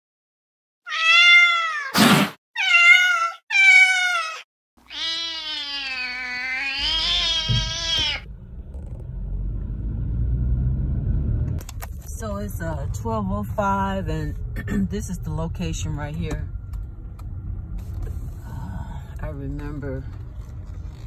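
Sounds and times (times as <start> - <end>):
cat meowing: 0.9 - 2.0, 2.6 - 8.3
low vehicle rumble: 6.6 - 21.0.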